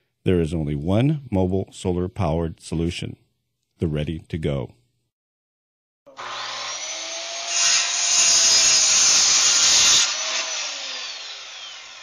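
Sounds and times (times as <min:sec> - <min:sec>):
circular saw whine: 0:06.1 - 0:12.0
saw cutting wooden board: 0:06.1 - 0:12.0.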